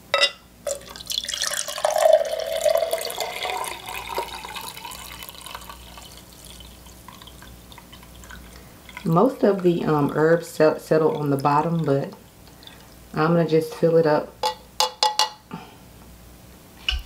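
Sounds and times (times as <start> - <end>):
liquid pouring into glass: 0.7 - 13.0.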